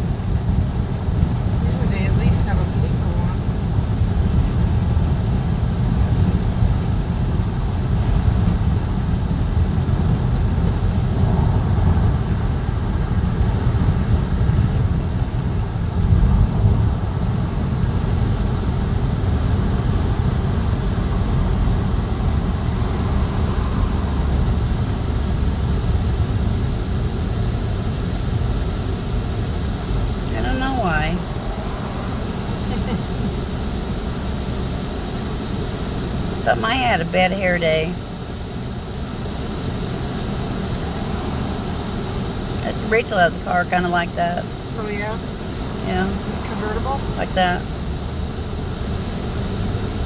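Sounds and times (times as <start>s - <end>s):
road and tyre noise in car: 0.0s - 50.0s.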